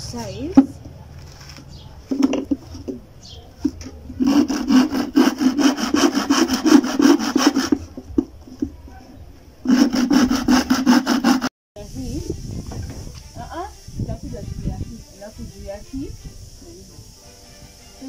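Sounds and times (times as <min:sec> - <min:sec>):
hand saw cutting wood: 0:03.6 - 0:08.7, 0:09.6 - 0:11.5.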